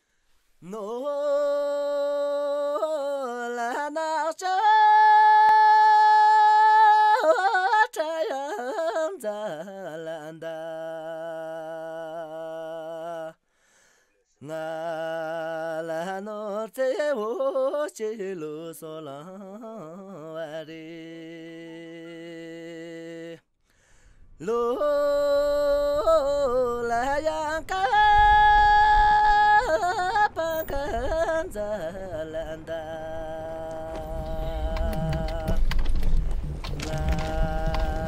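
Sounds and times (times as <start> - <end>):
solo voice singing: 0.6 - 13.4, 14.4 - 23.4, 24.4 - 38.0
low rumble: 24.3 - 38.0.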